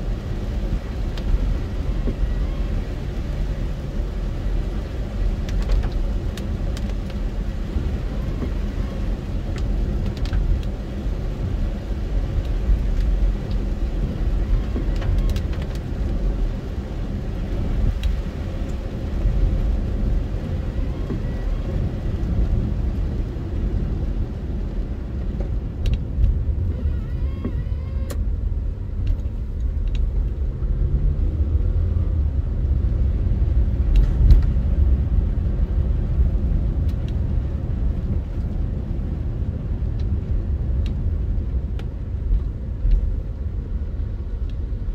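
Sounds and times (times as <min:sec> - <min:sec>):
car engine rumble inside cabin: 0:00.0 - 0:44.9
tyres on wet road: 0:00.0 - 0:44.9.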